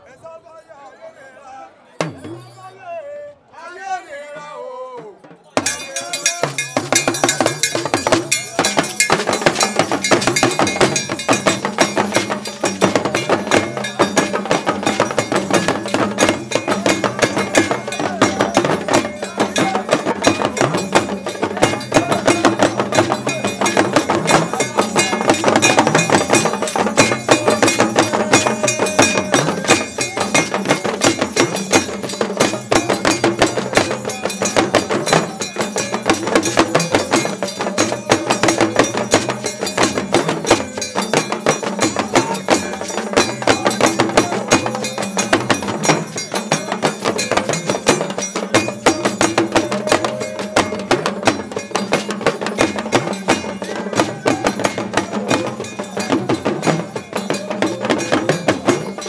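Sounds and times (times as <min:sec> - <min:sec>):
talking drums playing fast rhythms: 0:02.0 - 0:02.8, 0:05.0 - 0:59.0.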